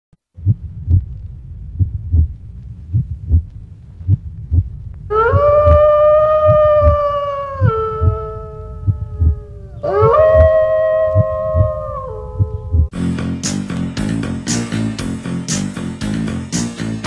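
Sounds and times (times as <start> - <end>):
heartbeat double thump: 0.4 - 13.0
long loud howl: 5.1 - 12.8.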